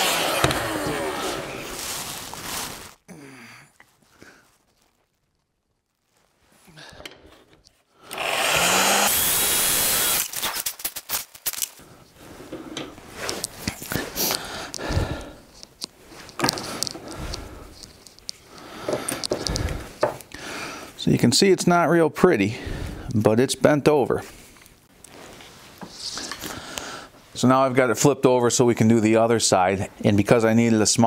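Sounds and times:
heat gun motor running: 0.0 - 1.6, 8.0 - 10.7
plastic sheet scraping: 0.0 - 3.0.

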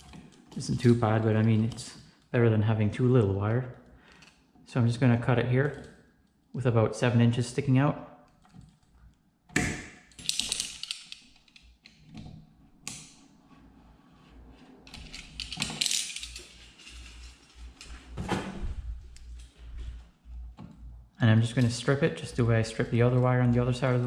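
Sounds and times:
cable crackling and rustling: 10.3 - 24.0.

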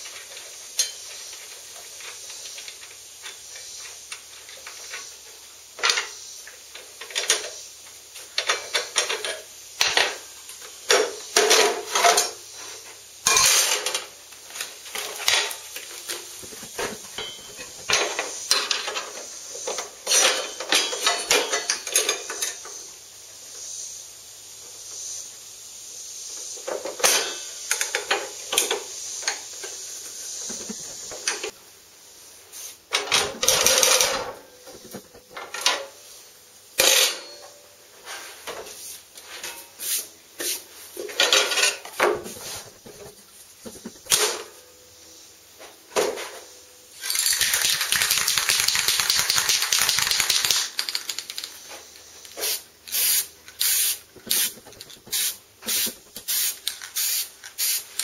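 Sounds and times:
steady hiss: 0.0 - 58.0
metal clinks of wrench and saw parts: 17.2 - 19.1, 20.0 - 22.7, 47.0 - 47.9.

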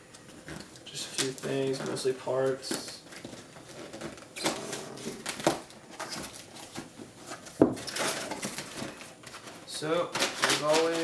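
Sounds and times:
cardboard flaps rustling: 0.2 - 11.0
packing tape slit and pulled: 10.1 - 11.0.

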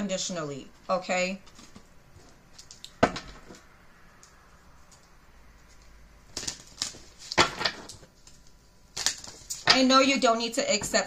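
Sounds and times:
cards clicking and rustling: 4.8 - 9.6.

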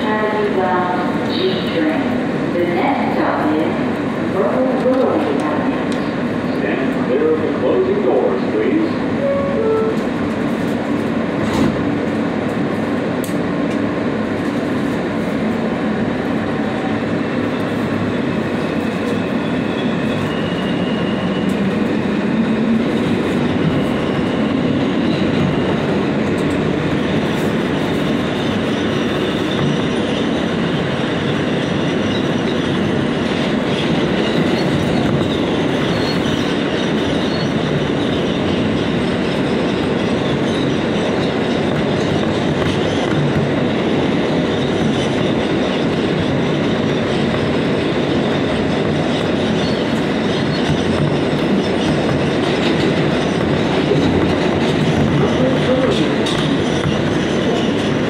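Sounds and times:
subway train wheels rumbling on rail: 0.0 - 58.0.

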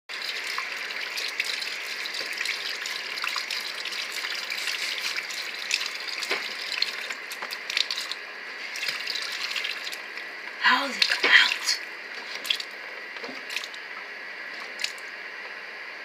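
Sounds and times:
faucet water splashing into metal sink: 0.1 - 8.2.

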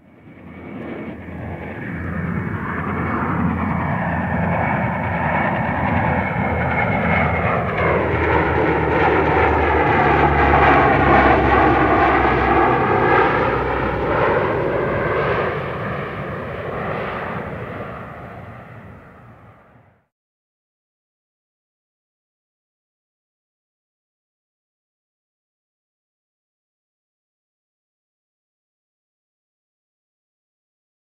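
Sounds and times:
helicopter passing overhead: 0.0 - 20.1.

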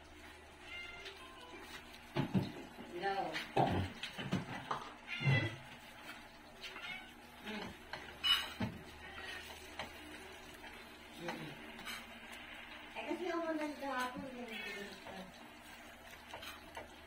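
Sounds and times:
cat meowing: 5.1 - 5.6, 6.7 - 7.2.

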